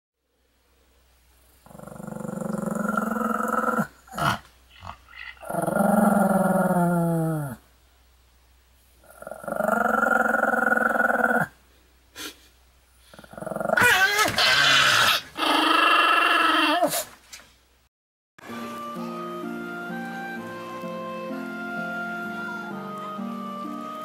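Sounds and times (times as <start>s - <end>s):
dog growling: 1.6s - 7.6s, 9.0s - 11.5s, 13.1s - 17.0s.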